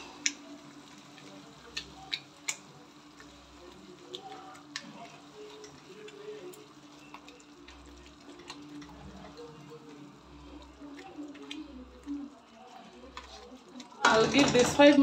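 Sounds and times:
spatula stirring thick sauce: 0.0 - 14.0
spatula clicking against pot: 1.7 - 3.3.

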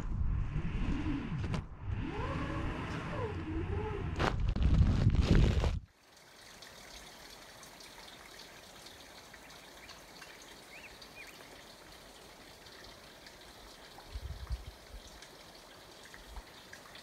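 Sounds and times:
small stream trickling: 5.8 - 17.0.

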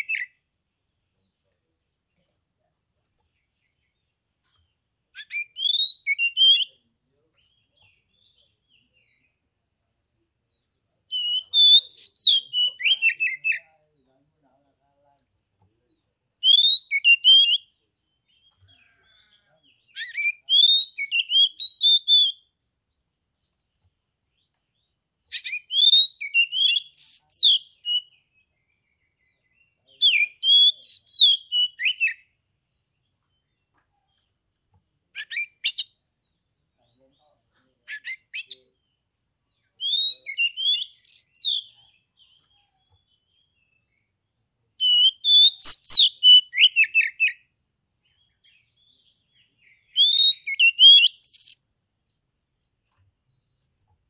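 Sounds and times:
bird singing whistled notes: 0.0 - 1.5, 4.9 - 6.8, 10.4 - 13.8, 16.4 - 18.7, 19.8 - 22.6, 24.4 - 32.8, 35.2 - 36.6, 37.9 - 44.1, 44.8 - 52.2.

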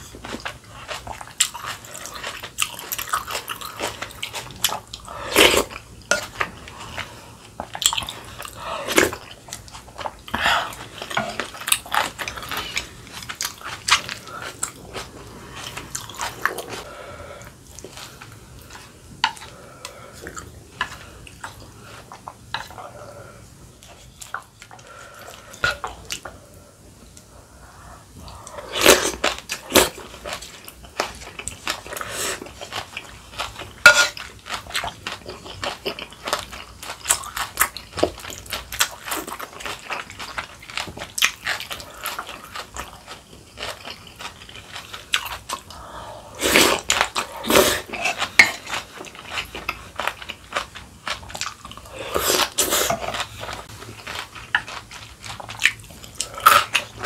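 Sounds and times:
spoon scraping earthenware pot: 33.8 - 34.2.

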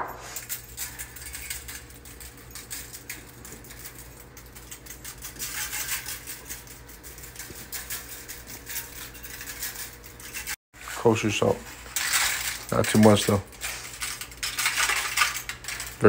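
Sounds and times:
pepper mill grinding: 0.2 - 16.0.

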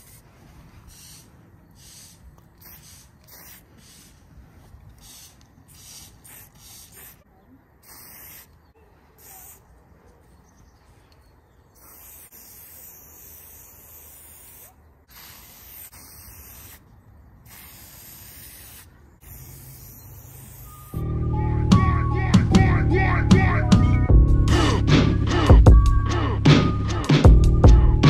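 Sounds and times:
spray paint can hissing: 0.0 - 0.2, 0.9 - 7.2, 7.8 - 8.6, 9.2 - 9.6, 11.8 - 16.8, 17.4 - 21.0.

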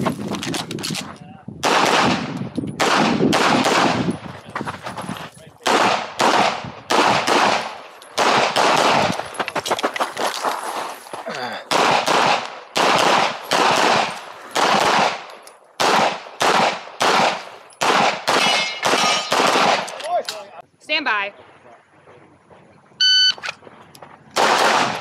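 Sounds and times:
pistol fired rapidly: 1.6 - 4.1, 5.6 - 9.1, 11.7 - 19.9, 24.4 - 25.0.

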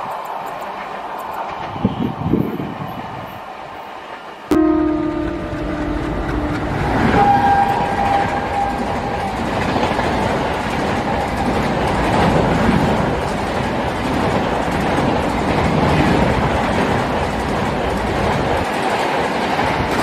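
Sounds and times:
train wheels rushing on rails: 0.0 - 20.0
high steady whine: 4.5 - 10.2
train horn: 4.5 - 10.3.

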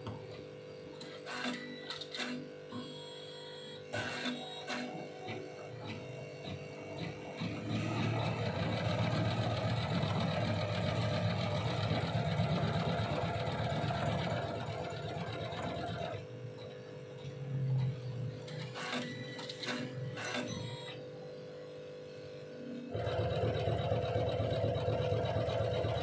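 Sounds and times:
embroidery machine stitching: 7.3 - 16.2, 22.9 - 26.0.

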